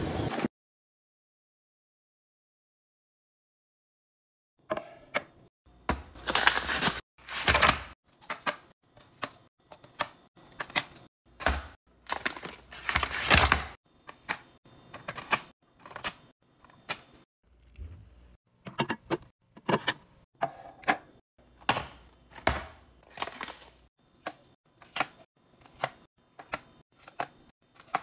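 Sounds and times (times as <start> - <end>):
foil pouches crinkling: 6.2 - 7.7.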